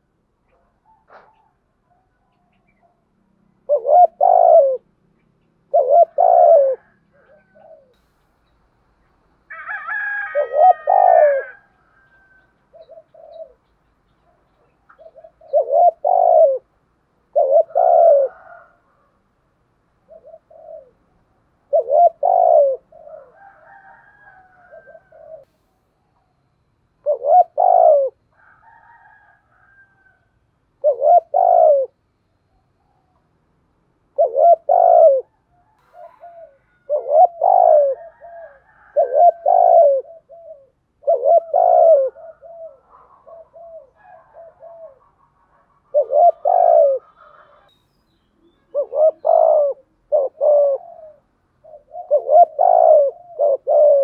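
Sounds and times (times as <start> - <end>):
dove cooing: 0.0 - 5.0, 5.6 - 8.0, 9.5 - 19.3, 20.0 - 25.6, 27.0 - 32.0, 34.1 - 47.7, 48.4 - 54.0
faint high bird calls: 0.4 - 19.3, 34.2 - 54.0.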